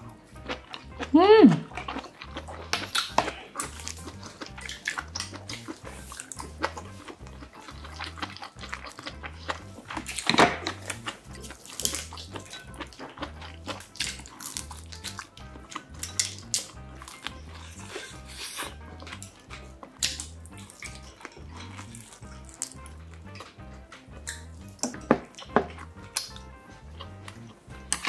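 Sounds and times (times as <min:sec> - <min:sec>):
soft background music: 0:00.0 - 0:28.0
wet chewing and slurping: 0:00.0 - 0:28.0.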